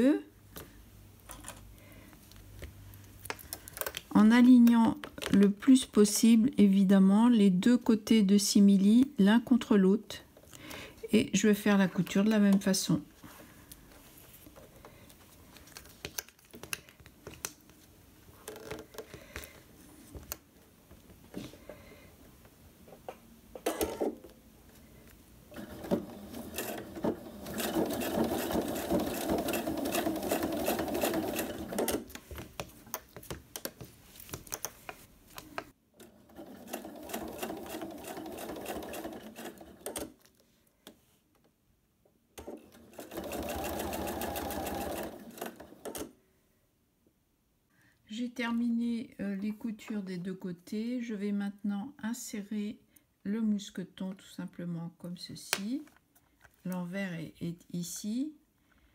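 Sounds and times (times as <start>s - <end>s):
sewing machine stitching: 25.5s - 32.1s, 36.0s - 40.1s, 42.4s - 46.1s.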